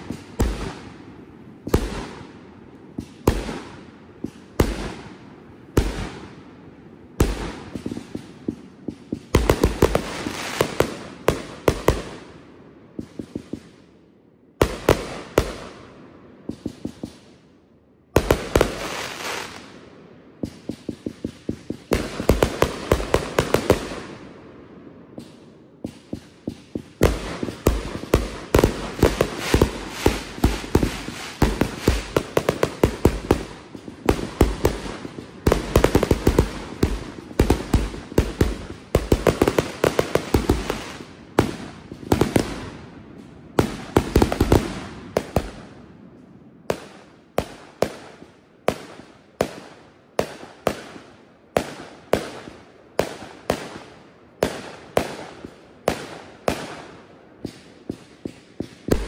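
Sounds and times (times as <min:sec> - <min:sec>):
firework launch thumps and bursts: 0:20.4 - 0:23.8.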